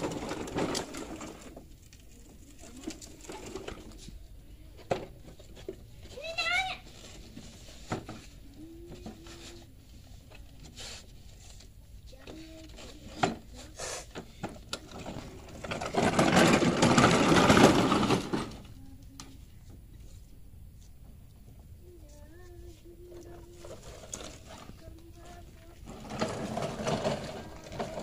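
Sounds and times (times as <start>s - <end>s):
machine-like rattling: 14.4s - 18.8s, 23.3s - 28.0s.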